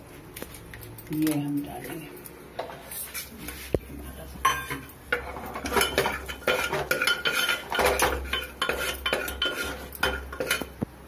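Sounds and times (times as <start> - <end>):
metal spoon scraping a pot: 4.5 - 10.8
seeds frying in hot oil: 4.8 - 11.0.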